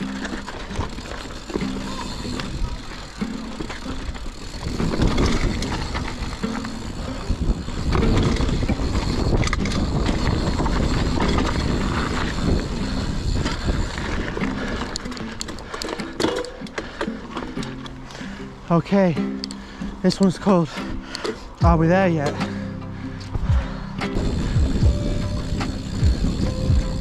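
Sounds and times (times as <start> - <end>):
wind buffeting microphone: 0.0 - 15.8, 23.3 - 27.0
bike tyres rumbling on dirt: 0.0 - 17.6, 23.4 - 27.0.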